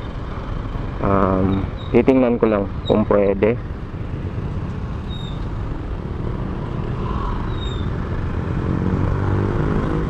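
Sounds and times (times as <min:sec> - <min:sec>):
motorcycle engine at low speed: 0:00.0 - 0:10.0
surrounding traffic noise: 0:00.0 - 0:10.0
short high squeaks: 0:07.5 - 0:07.9.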